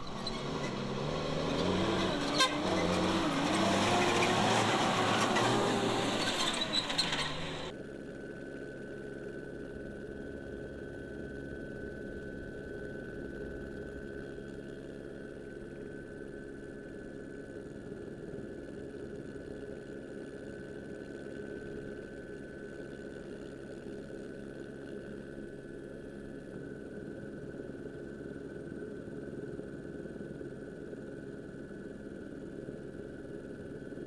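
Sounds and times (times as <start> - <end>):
engine drone: 0.0 - 7.7.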